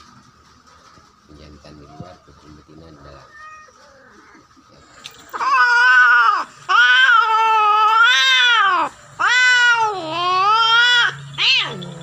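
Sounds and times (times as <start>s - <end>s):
cat yowling: 3.2s - 4.4s, 5.3s - 12.0s.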